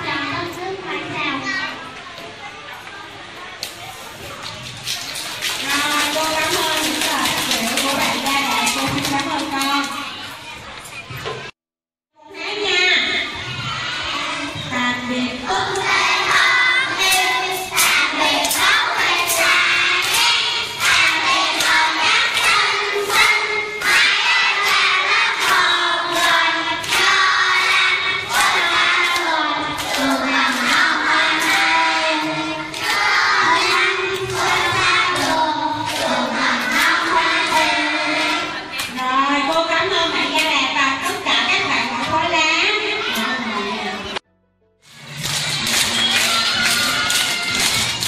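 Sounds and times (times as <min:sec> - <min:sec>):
hands clapping: 0:04.4 - 0:10.2, 0:17.0 - 0:39.0, 0:44.9 - 0:48.0
children singing in chorus: 0:15.4 - 0:38.8.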